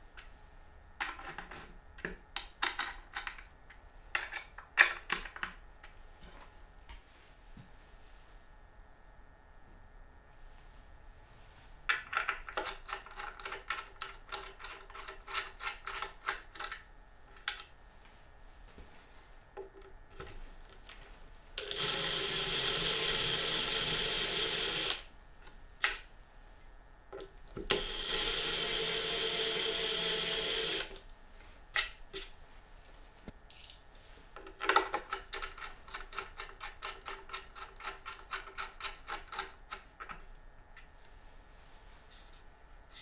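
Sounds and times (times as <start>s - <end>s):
power drill cutting wood: 21.6s - 25.0s, 27.7s - 30.9s.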